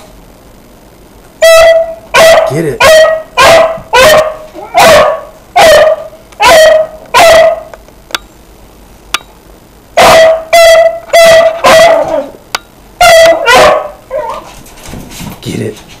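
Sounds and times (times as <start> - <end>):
dog barking: 1.4 - 7.7, 10.0 - 12.4, 13.0 - 14.5.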